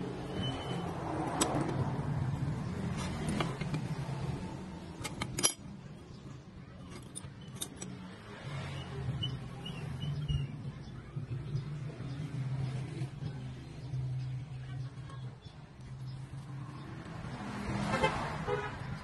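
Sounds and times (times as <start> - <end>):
steel plates clinking: 5.0 - 5.8, 6.8 - 8.0.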